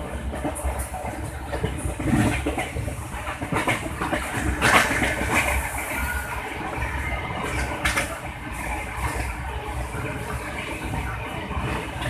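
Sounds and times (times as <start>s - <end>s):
train wheels clicking and knocking: 0.0s - 6.1s, 7.4s - 9.3s
train clatter: 0.0s - 12.0s
train rumbling: 0.0s - 12.0s.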